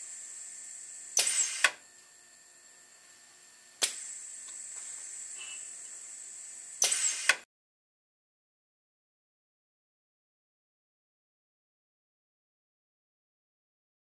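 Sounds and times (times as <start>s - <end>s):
steady air hiss: 0.0s - 1.8s, 3.0s - 7.4s
valve clicking: 3.8s - 4.6s, 6.8s - 7.4s.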